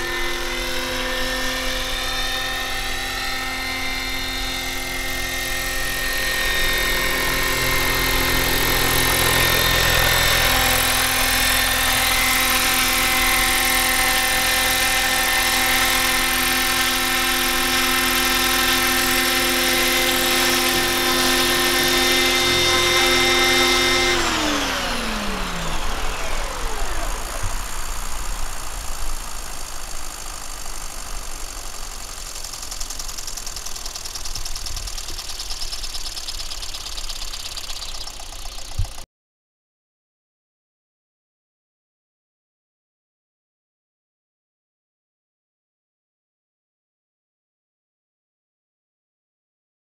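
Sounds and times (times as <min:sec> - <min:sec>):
rotor spinning down: 0:00.0 - 0:39.0
rc helicopter motor whine: 0:00.0 - 0:39.1.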